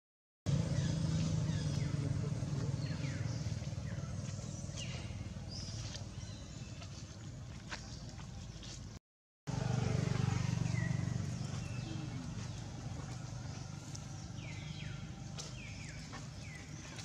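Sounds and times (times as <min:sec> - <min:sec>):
steady low rumble: 0:00.5 - 0:08.3.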